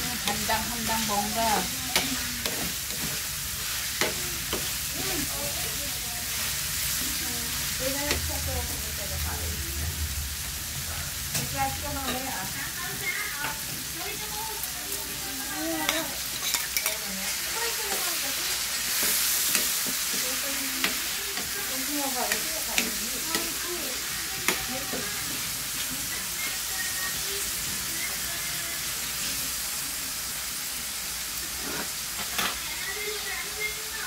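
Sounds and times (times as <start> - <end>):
spatula scraping pan: 0.0 - 8.9, 15.4 - 28.2, 31.4 - 32.6
meat sizzling in oil: 0.0 - 34.0.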